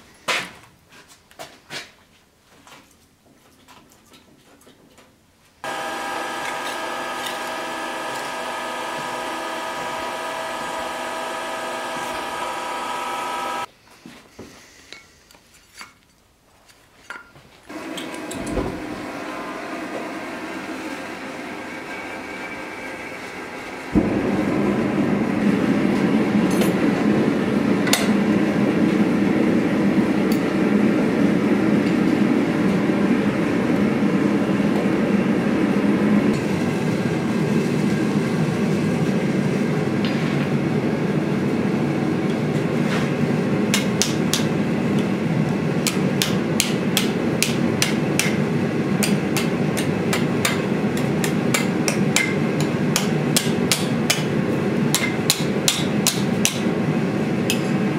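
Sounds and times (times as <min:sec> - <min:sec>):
forge burner roaring: 0:05.6 - 0:13.7, 0:17.7 - 0:52.8
hammer striking steel on anvil: 0:49.0 - 0:54.3, 0:54.9 - 0:56.7.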